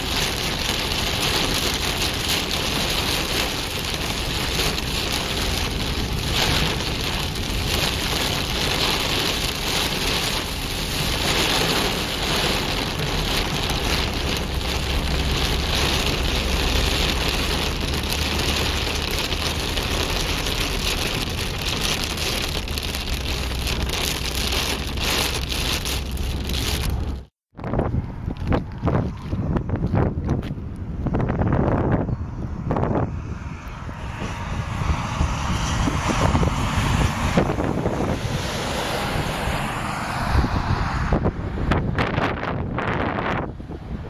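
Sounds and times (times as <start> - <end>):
car driving on wet road: 0.0 - 27.3, 27.9 - 44.0
heavy rain on car windshield: 0.0 - 27.3, 38.4 - 41.1.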